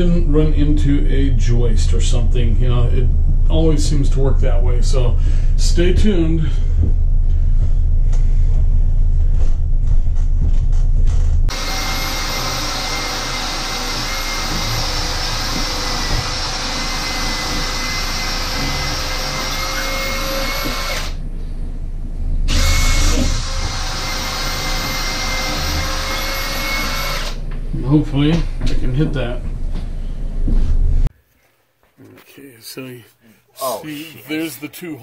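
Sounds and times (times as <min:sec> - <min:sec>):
low hum: 0:00.0 - 0:31.1
electric drill whining: 0:11.5 - 0:21.2, 0:22.5 - 0:27.4.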